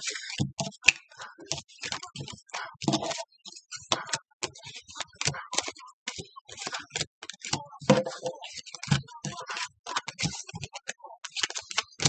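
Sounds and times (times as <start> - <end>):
cards being shuffled: 6.6 - 12.0.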